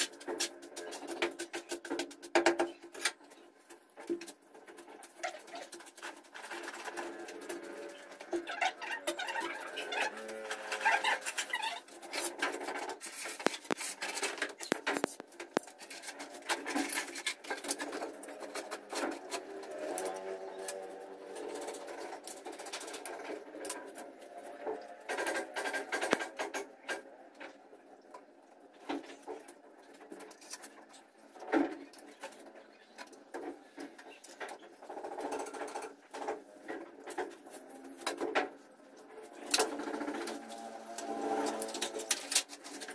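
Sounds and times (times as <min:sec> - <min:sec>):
tools scraping and knocking: 0:00.0 - 0:27.2.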